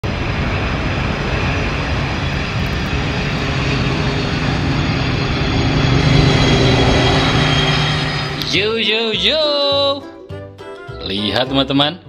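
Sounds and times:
jet engines running: 0.1s - 9.0s.

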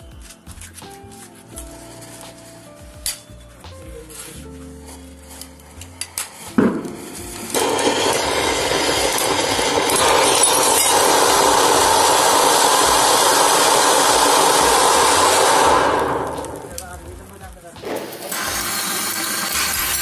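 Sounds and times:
firework fountain hissing: 4.1s - 20.0s
glass bottle cracking: 6.0s - 12.8s, 17.8s - 20.0s
small crackles: 16.1s - 18.5s.

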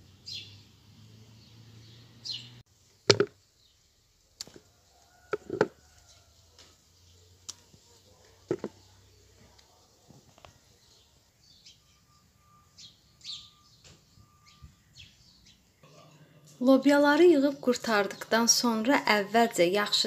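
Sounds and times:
small birds chirping: 0.0s - 16.1s
bean pods dropped in plastic bowl: 3.1s - 3.4s, 8.5s - 8.8s.

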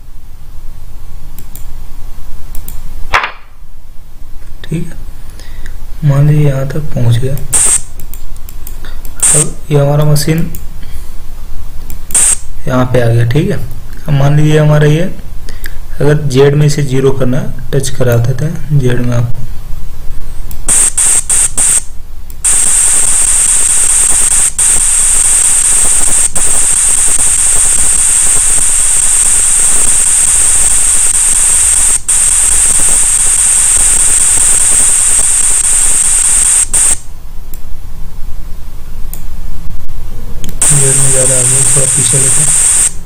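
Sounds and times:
electronic hiss: 4.7s - 17.0s, 19.1s - 37.6s, 38.2s - 43.0s
short electronic blips: 20.7s - 21.8s, 22.4s - 37.0s, 40.5s - 43.0s.

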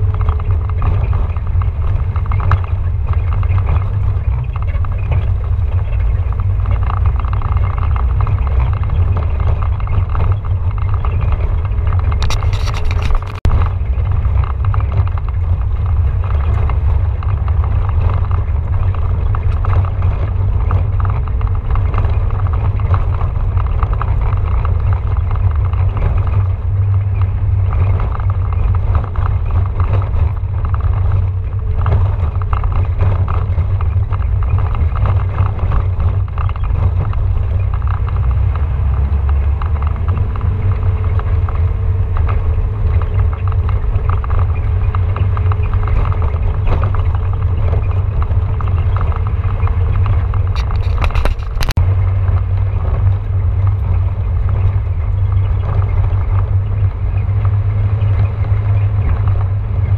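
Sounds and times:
tyres on loose stones: 0.0s - 51.9s
vehicle engine rumble: 0.0s - 59.9s
high clicks or rattles: 12.1s - 13.5s, 50.5s - 51.8s.

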